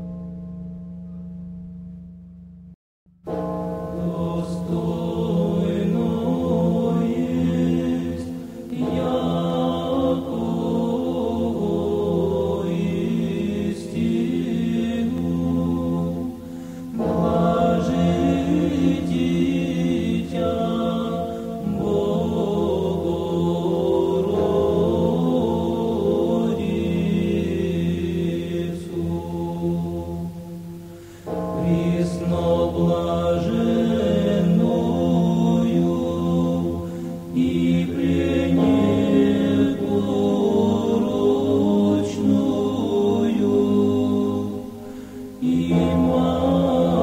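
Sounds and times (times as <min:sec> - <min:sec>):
low held tone: 0:00.0 - 0:02.8
choral chant: 0:03.8 - 0:47.0.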